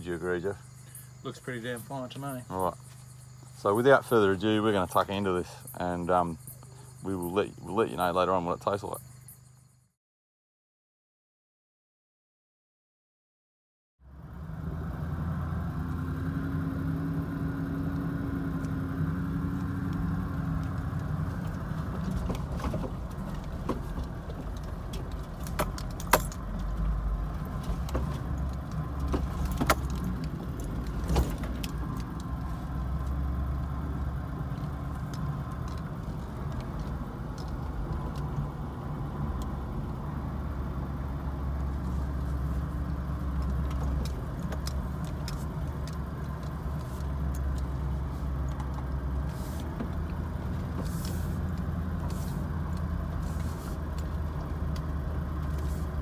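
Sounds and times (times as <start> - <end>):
low engine and road rumble: 0.0 - 9.9, 14.0 - 56.0
rattles and knocks over bumps: 20.4 - 38.6, 41.5 - 56.0.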